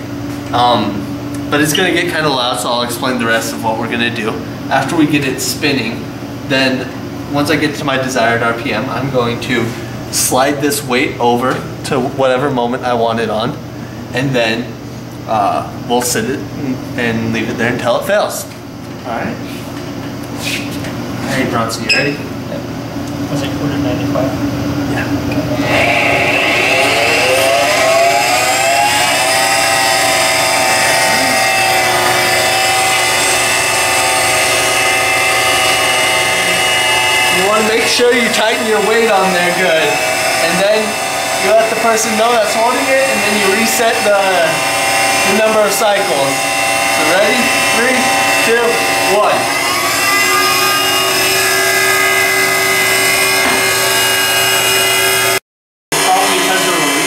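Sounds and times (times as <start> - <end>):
testing machine whine: 21.4 - 57.0.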